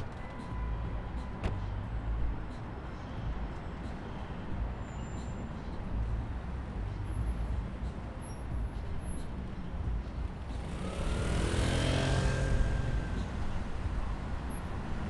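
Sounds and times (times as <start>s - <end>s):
city traffic rumble: 0.0s - 15.0s
vehicle driving past: 10.6s - 13.8s.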